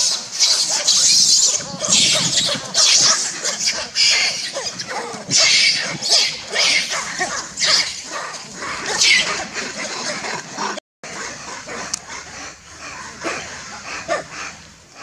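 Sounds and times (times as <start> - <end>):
monkey screaming shrilly: 0.0 - 8.1, 8.8 - 9.5
monkeys scuffling: 0.0 - 10.3.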